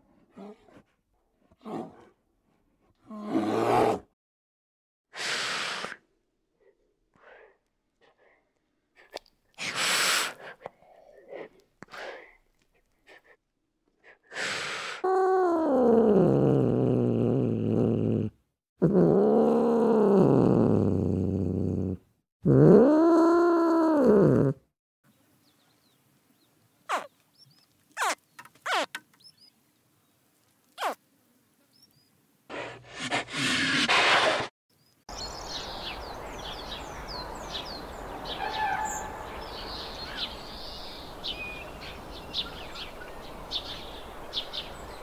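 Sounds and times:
animal snorting: 32.5 - 34.5.

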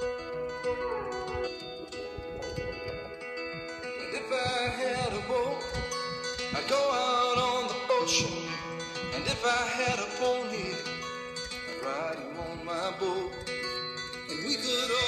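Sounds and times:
country song with guitar: 0.0 - 15.0.

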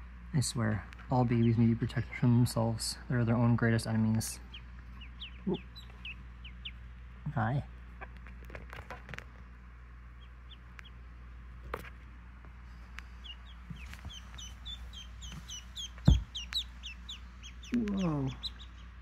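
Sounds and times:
ducklings peeping: 0.6 - 19.0
low thump: 16.0 - 16.4.

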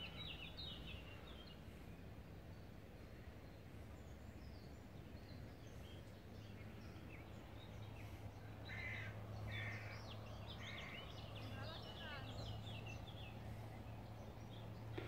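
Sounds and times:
small birds chirping: 0.0 - 15.0
harsh bird calls: 5.6 - 15.0.

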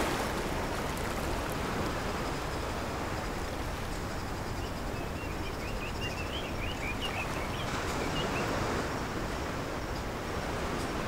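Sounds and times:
ocean waves washing onto beach: 0.0 - 11.0
bird chirping: 4.6 - 8.5.

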